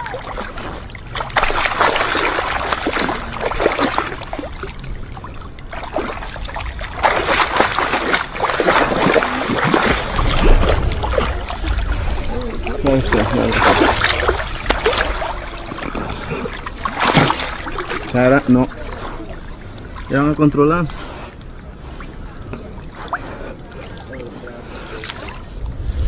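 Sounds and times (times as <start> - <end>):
water splashing and sloshing: 0.0 - 26.0
low rumble: 0.2 - 18.1, 25.4 - 26.0.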